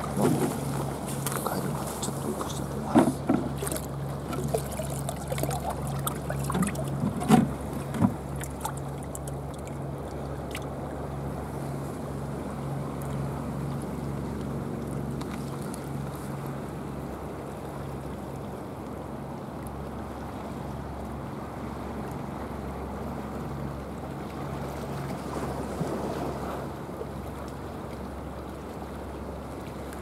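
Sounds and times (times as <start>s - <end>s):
steady low pulsing hum: 0.0s - 21.0s
water sloshing and splashing: 0.0s - 30.0s.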